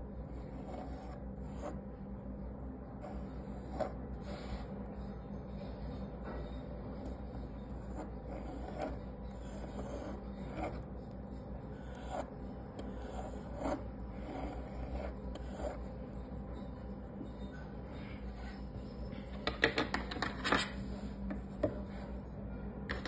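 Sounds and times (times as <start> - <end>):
steady low hum: 0.0 - 23.0
pencil scratching on wood: 0.3 - 1.8, 3.0 - 4.8, 7.6 - 10.9, 11.7 - 16.0.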